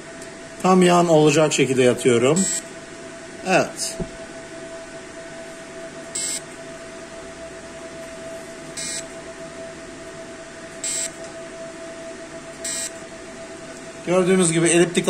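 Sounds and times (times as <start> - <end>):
machine steady hum: 0.0 - 15.0
short high laser beeps: 12.6 - 12.9.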